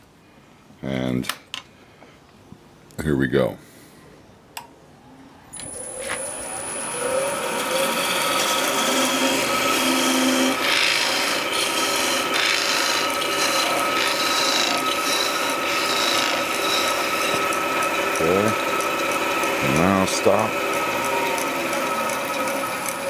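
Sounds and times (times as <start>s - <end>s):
wood lathe tool scraping hiss: 5.7s - 23.0s.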